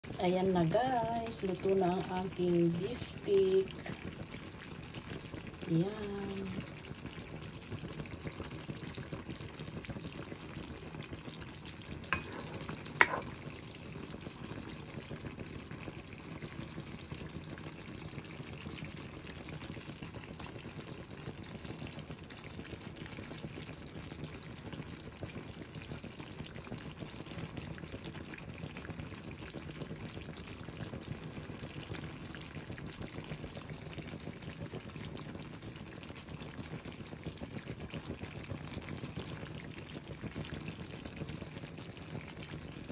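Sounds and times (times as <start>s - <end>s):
food sizzling and bubbling in pan: 0.0s - 42.9s.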